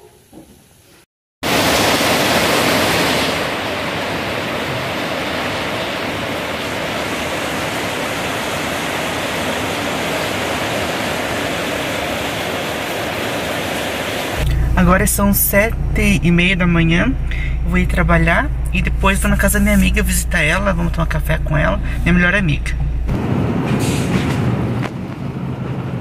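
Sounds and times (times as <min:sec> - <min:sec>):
heavy rain falling: 0:01.4 - 0:15.6.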